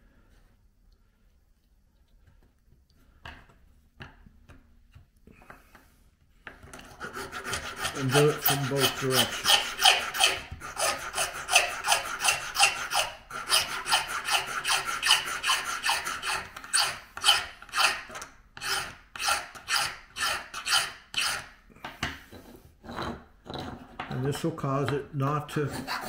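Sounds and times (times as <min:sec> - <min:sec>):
hand file rasping on metal: 0:06.8 - 0:21.6, 0:25.5 - 0:26.0.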